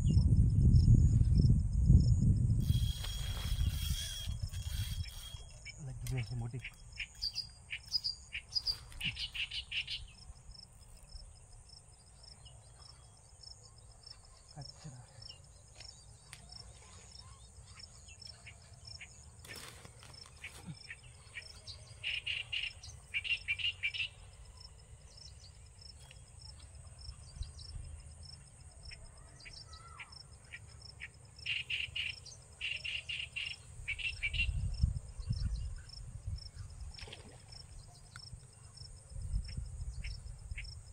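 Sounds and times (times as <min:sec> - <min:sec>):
low rumble: 0:00.0 - 0:02.6
high insect trill: 0:00.2 - 0:29.0
quick bird chirps: 0:06.6 - 0:10.0.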